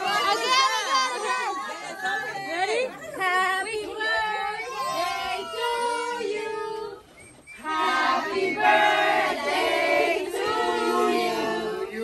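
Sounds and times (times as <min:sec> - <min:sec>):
group singing a celebration song: 0:03.2 - 0:12.0.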